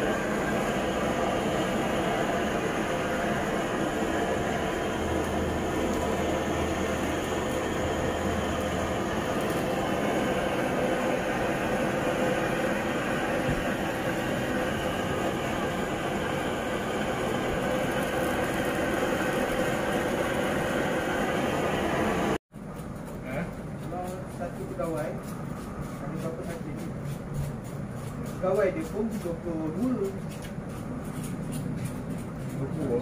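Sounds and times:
blowtorch hissing: 0.0s - 22.4s.

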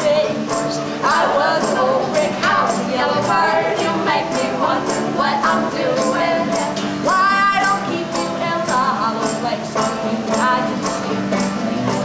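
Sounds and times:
high percussive beat: 0.0s - 12.0s
strummed acoustic guitar: 0.0s - 12.0s
woman singing: 0.0s - 12.0s.

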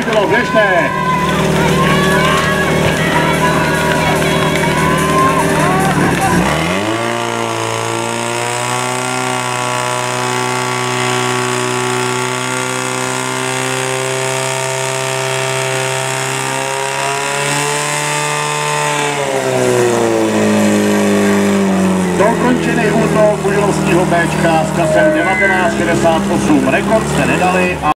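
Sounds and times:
pump engine running at high revs: 0.0s - 27.9s.

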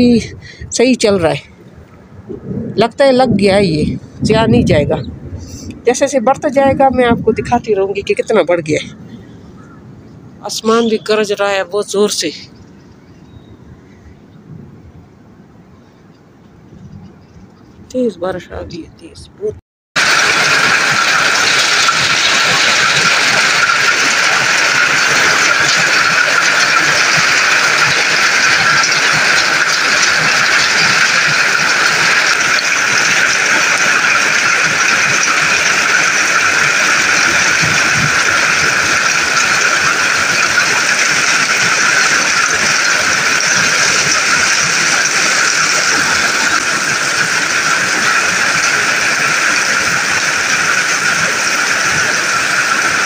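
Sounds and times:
hail and rain pelting ground: 20.0s - 53.0s.

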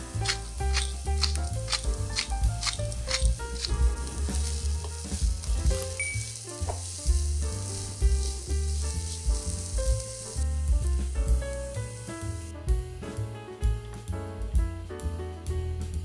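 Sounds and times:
vegetables sizzling in oil: 0.0s - 12.5s
background music: 0.0s - 16.0s.

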